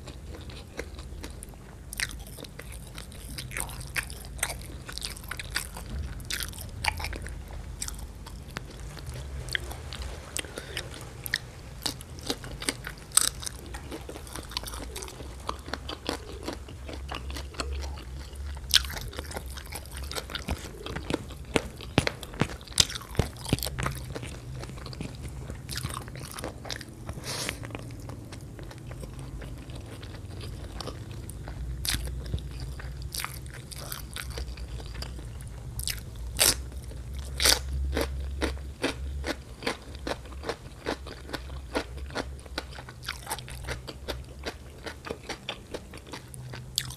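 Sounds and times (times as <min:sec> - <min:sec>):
crunchy chewing: 0:00.0 - 0:46.9.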